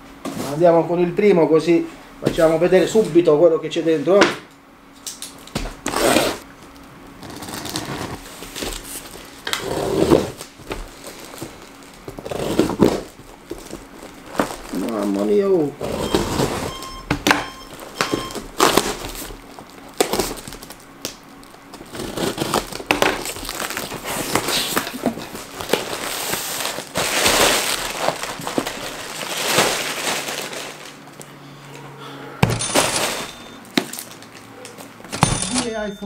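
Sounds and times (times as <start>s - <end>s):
plastic packing rustling: 5.4s - 17.0s, 17.6s - 31.3s, 32.7s - 35.9s.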